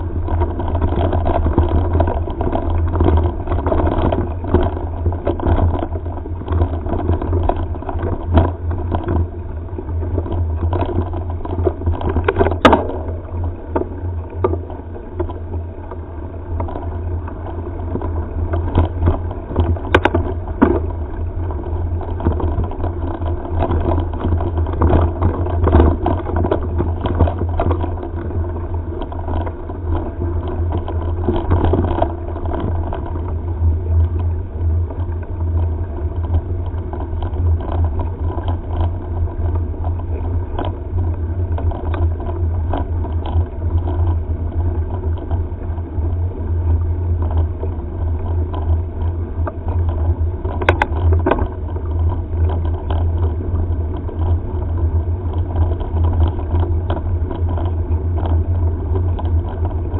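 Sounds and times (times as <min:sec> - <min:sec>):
bike rattles and knocks: 0:00.0 - 0:59.9
wind and tyres on gravel: 0:00.0 - 0:59.9.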